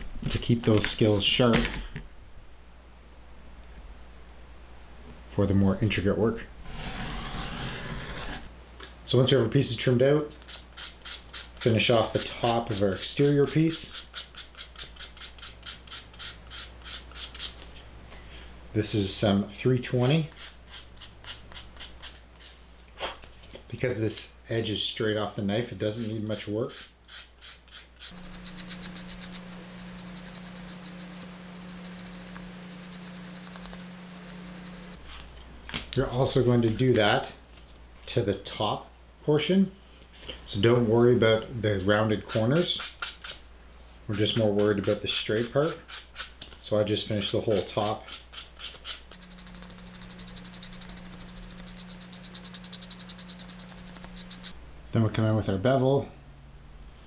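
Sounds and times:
sandpaper rubbing leather edge: 10.4s - 17.6s, 26.7s - 35.0s, 47.5s - 54.6s
steady low hum: 28.0s - 39.3s, 49.1s - 55.2s.

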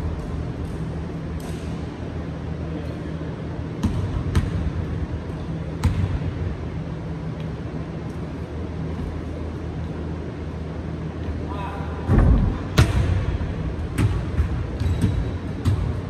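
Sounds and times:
basketball bouncing on wood floor: 13.9s - 16.0s.

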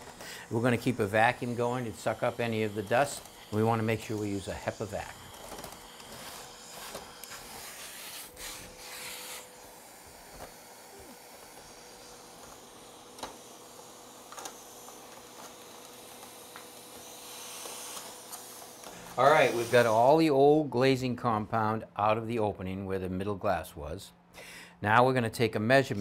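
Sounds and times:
vacuum hose hissing: 0.0s - 20.6s.

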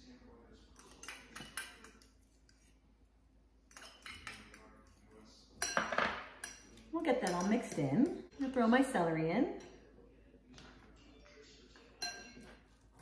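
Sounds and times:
fork clinking against glass bowl: 0.7s - 2.8s, 3.7s - 8.4s, 11.8s - 13.0s.

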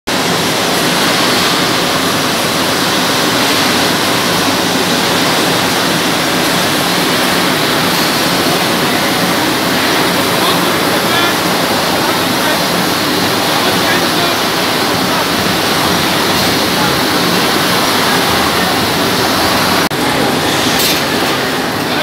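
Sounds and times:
processing line conveyor rushing: 0.1s - 22.0s.

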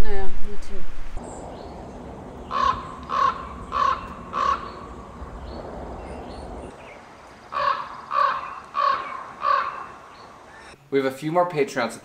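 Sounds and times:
crow cawing: 2.5s - 4.9s, 7.5s - 10.8s.

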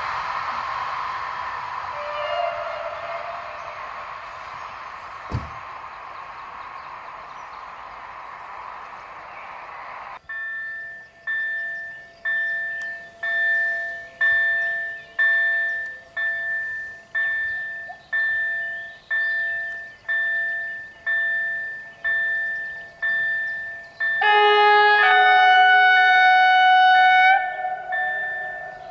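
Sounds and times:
level crossing warning bell ringing: 10.2s - 28.9s.

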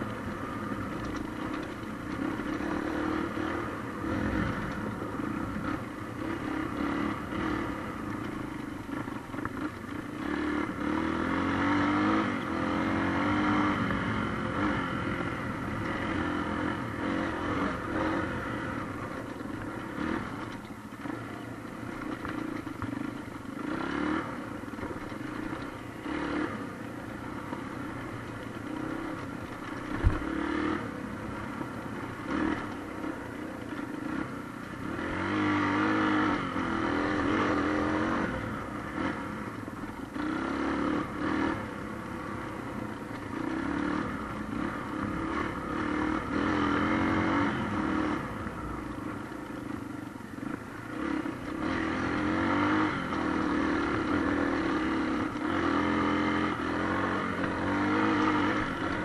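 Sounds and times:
clatter and rattle from bumpy ground: 0.0s - 10.4s, 17.8s - 36.0s, 42.4s - 46.8s
motorbike engine revving: 0.0s - 59.0s.

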